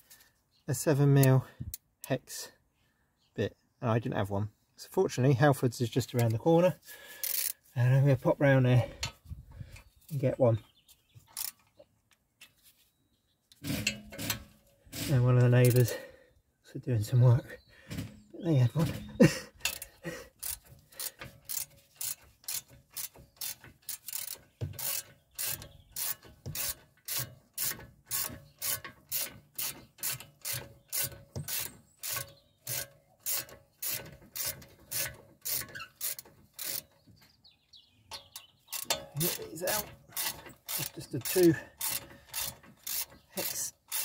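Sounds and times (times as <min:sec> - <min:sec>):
ratchet wrench clicking: 0:07.2 - 0:07.6, 0:11.3 - 0:11.7, 0:19.6 - 0:36.9, 0:38.7 - 0:44.0.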